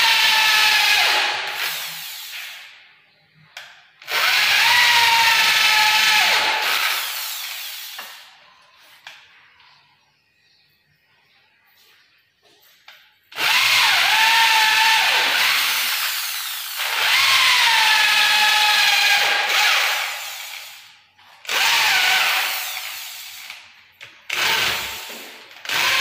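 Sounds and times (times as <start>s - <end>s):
electric drill boring into wood: 4.0s - 8.2s, 13.4s - 20.9s, 21.5s - 23.6s, 24.3s - 26.0s.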